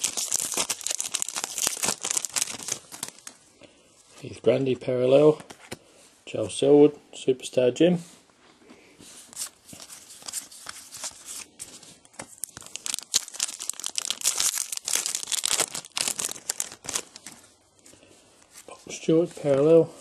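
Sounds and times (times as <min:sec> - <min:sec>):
plastic wrapper tearing and crinkling: 0:00.0 - 0:03.4, 0:09.4 - 0:17.5.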